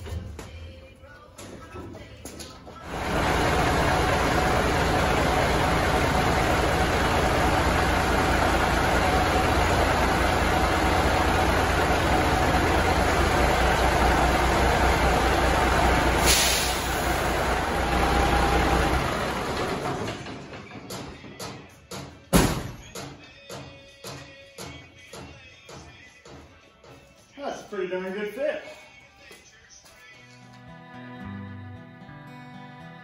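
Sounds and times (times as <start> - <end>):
machine running loudly: 2.8 - 20.4
short hiss: 16.2 - 17.0.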